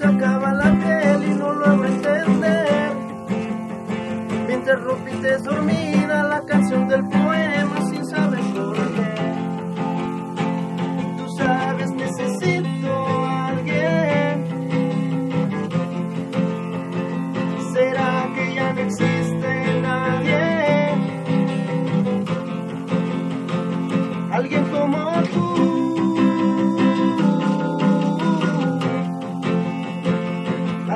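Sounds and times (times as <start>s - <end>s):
acoustic guitar chords: 0.0s - 30.9s.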